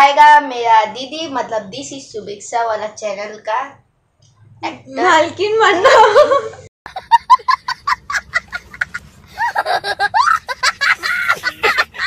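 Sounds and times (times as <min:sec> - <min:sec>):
child speaking: 0:00.0 - 0:03.8, 0:04.6 - 0:05.8
child laughing: 0:05.8 - 0:12.0.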